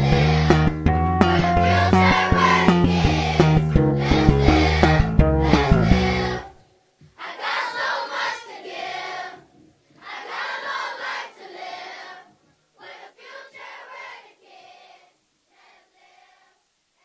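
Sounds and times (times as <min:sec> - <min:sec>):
hip-hop beat with heavy bass: 0:00.0 - 0:06.3
choir singing unaccompanied: 0:00.0 - 0:16.6.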